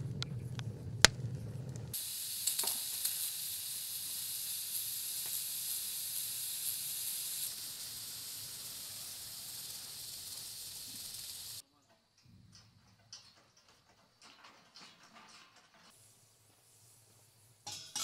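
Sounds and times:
wood fire crackling: 0:00.0 - 0:11.6
pressure cooker steam hissing: 0:01.9 - 0:11.6.

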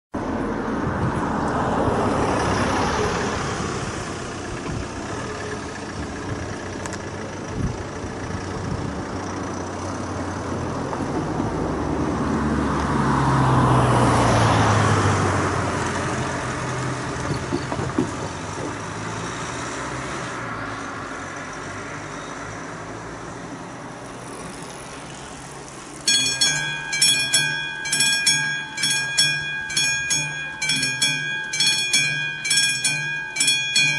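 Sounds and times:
road traffic passing: 0:00.1 - 0:33.9
level crossing warning bell: 0:26.0 - 0:33.9.

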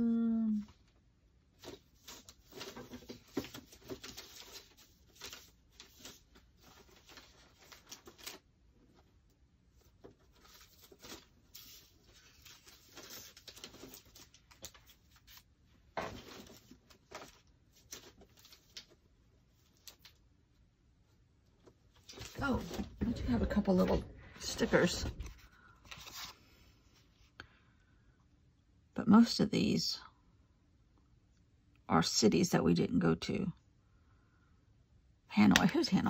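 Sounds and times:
paper rustling: 0:01.6 - 0:20.2, 0:21.9 - 0:27.2.

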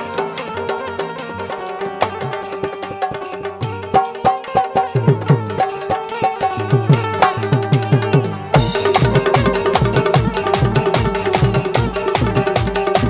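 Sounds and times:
small cymbals clashing: 0:00.0 - 0:08.0, 0:08.6 - 0:13.0
hand drums fast rhythm: 0:00.0 - 0:13.0
held note: 0:00.0 - 0:13.0.

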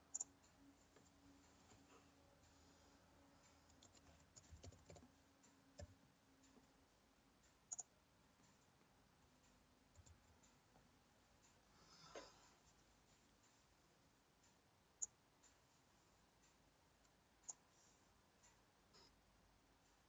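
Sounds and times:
computer keyboard and mouse clicks: 0:03.6 - 0:05.1, 0:07.7 - 0:07.9.

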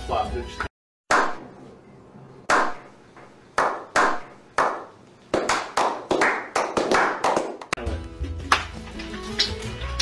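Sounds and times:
slow hand clapping: 0:03.6 - 0:07.8, 0:08.4 - 0:09.6.

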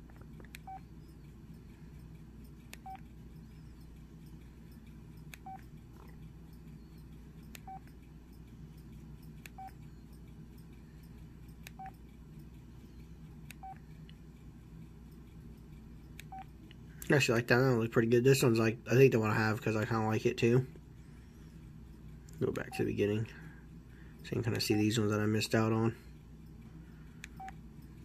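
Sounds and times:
phone key-press beeps: 0:00.5 - 0:01.2, 0:02.7 - 0:03.9, 0:05.3 - 0:06.2, 0:06.8 - 0:08.0, 0:09.4 - 0:10.0, 0:11.7 - 0:12.0, 0:13.5 - 0:13.8, 0:16.2 - 0:16.5, 0:27.2 - 0:27.6.

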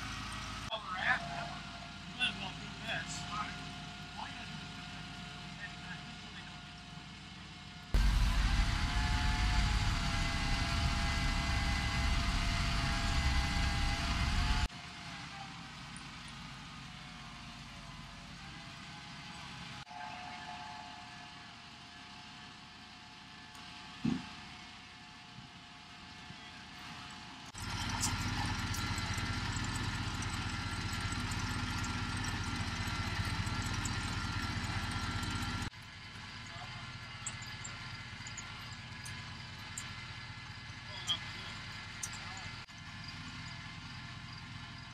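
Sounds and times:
thin steady whine: 0:00.0 - 0:07.2, 0:07.9 - 0:14.7
crane engine running: 0:00.0 - 0:44.9
heavy low rumble and hiss: 0:08.0 - 0:14.7.

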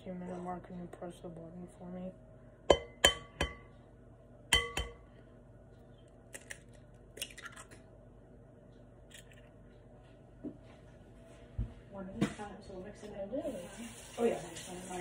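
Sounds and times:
object clinking against mixing bowl: 0:04.5 - 0:05.0.

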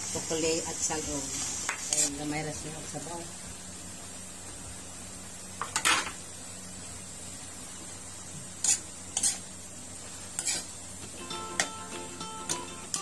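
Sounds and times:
low sizzle: 0:00.0 - 0:13.0
metal spatula scraping wok: 0:01.9 - 0:02.2, 0:08.6 - 0:09.5, 0:10.3 - 0:10.8.

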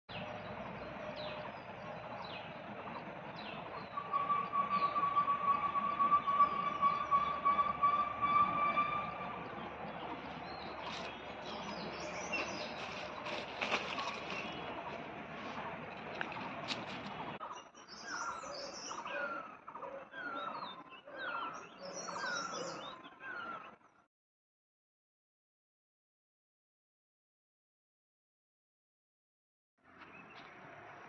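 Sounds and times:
bird chirps: 0:00.1 - 0:23.8
pulsing pitched whine: 0:00.2 - 0:17.4
cats scrambling through dry leaves: 0:10.8 - 0:17.4.

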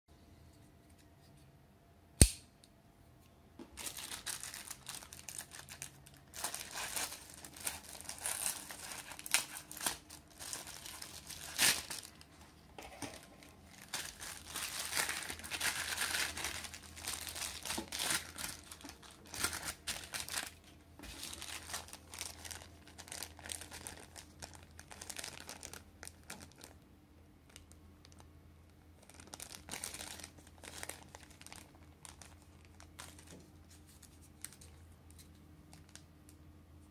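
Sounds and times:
sharp click: 0:02.2 - 0:02.7
packaging crinkling and tearing: 0:03.7 - 0:26.8, 0:29.0 - 0:36.1.

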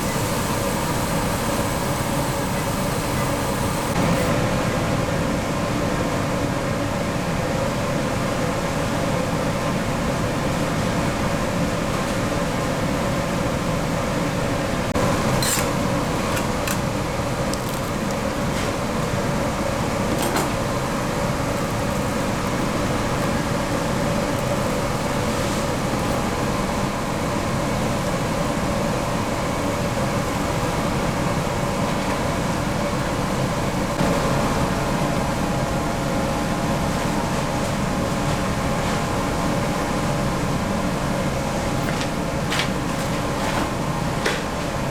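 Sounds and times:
machinery drone: 0:00.0 - 0:04.8.

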